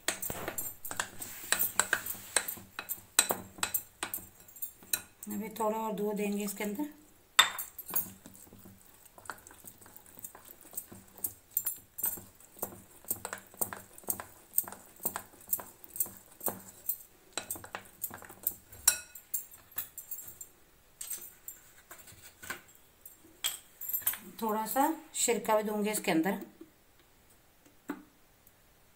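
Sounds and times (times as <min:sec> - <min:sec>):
spoon clinking against glass bowl: 0:00.1 - 0:05.3, 0:07.4 - 0:20.5.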